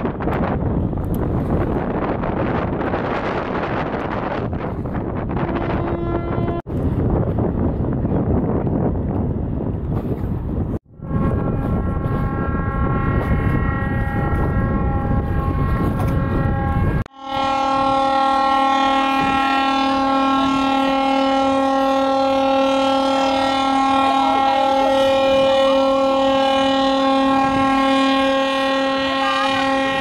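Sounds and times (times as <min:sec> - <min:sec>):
wind noise on microphone: 0:00.0 - 0:30.0
ship's horn blast: 0:05.2 - 0:06.7, 0:10.8 - 0:30.0.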